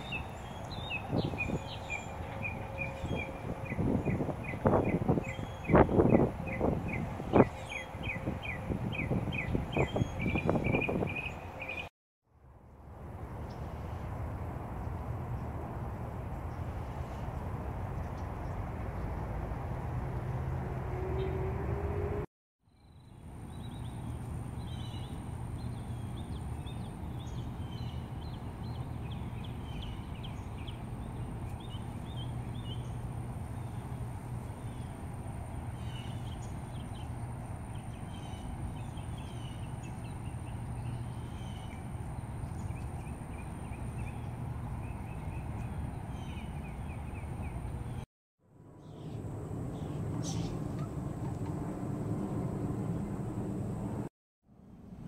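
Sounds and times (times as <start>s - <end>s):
small birds chirping: 0.0s - 11.9s, 22.8s - 48.0s, 48.8s - 50.6s
steady low rumble: 48.6s - 54.1s.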